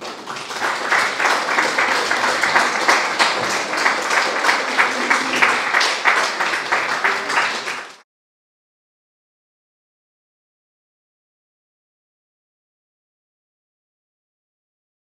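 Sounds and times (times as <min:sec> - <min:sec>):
audience applauding: 0:00.0 - 0:08.0.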